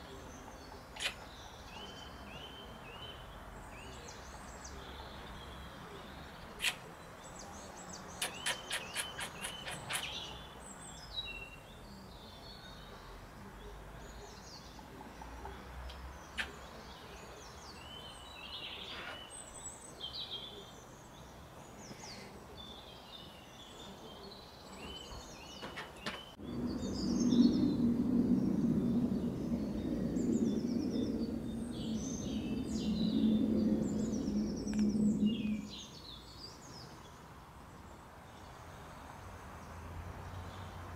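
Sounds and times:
birds chirping: 0.0 - 40.9
steady low hum: 26.3 - 36.0.

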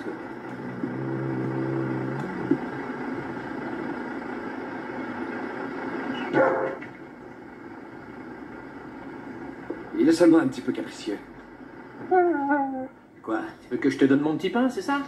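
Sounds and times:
vehicle running noise: 0.0 - 11.8
dog barking: 6.2 - 6.8.

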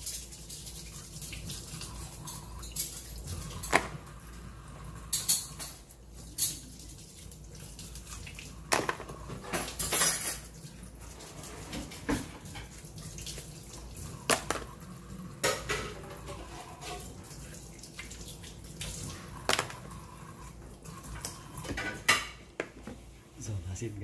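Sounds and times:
faucet running: 0.0 - 22.1.

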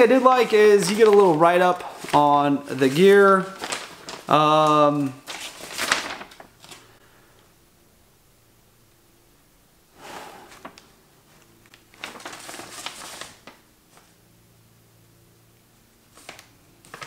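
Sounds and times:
paper sheet rustling: 0.0 - 7.0, 10.4 - 14.2, 16.1 - 17.0.

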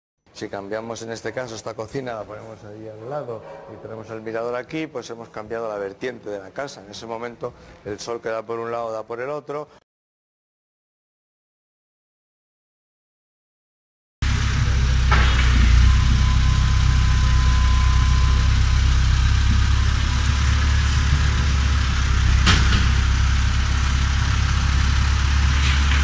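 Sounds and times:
diesel engine running: 14.2 - 26.0.

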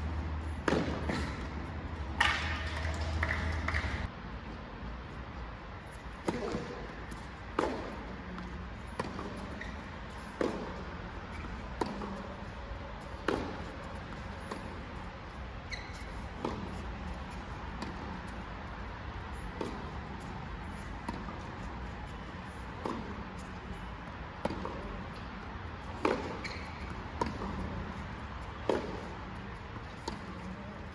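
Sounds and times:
tennis ball hit by rackets: 0.4 - 4.1, 6.2 - 14.8, 16.3 - 18.4, 19.3 - 20.3, 21.0 - 21.6, 22.7 - 23.5, 24.4 - 30.6.

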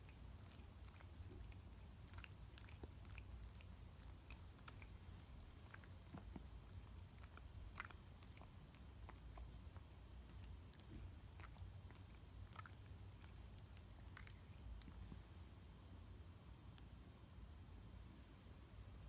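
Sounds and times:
cat licking paw: 0.0 - 15.2.

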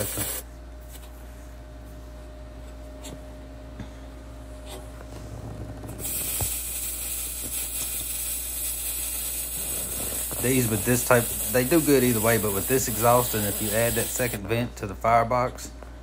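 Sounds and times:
welding arc crackling hiss: 0.0 - 0.4, 6.0 - 14.5
faint machine hum: 0.0 - 16.0.

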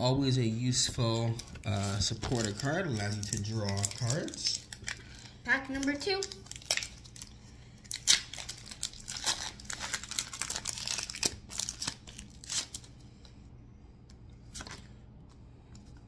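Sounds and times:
foil wrapper tearing and crinkling: 1.2 - 12.9.

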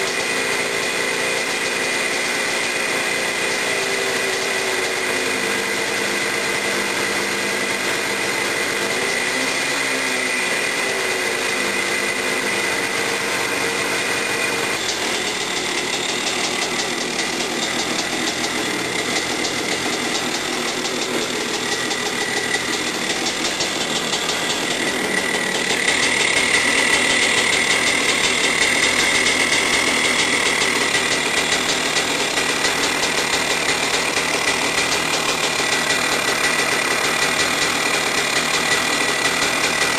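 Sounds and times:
two-stroke engine running: 0.0 - 39.9.

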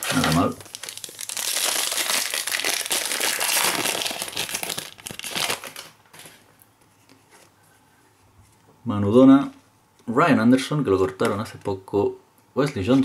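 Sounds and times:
foil wrapper crinkling: 0.0 - 6.0.

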